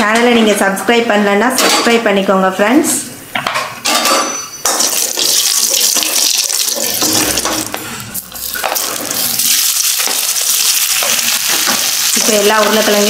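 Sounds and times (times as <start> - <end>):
hot oil sizzling: 4.6 - 13.0.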